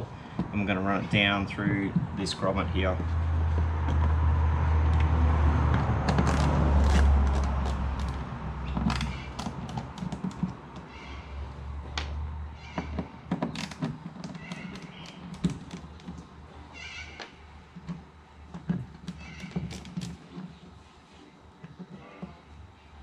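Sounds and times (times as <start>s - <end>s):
passing traffic rumble: 0.0s - 23.0s.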